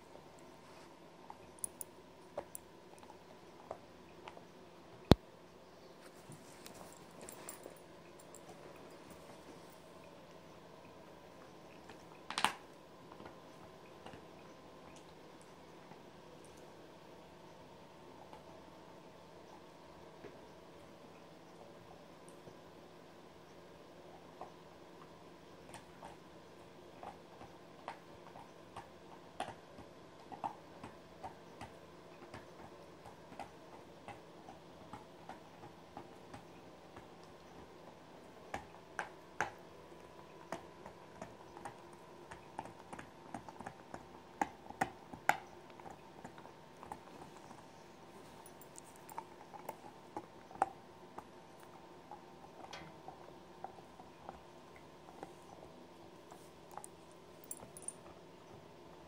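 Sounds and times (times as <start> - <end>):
dog chewing a blanket: 24.0 - 59.0.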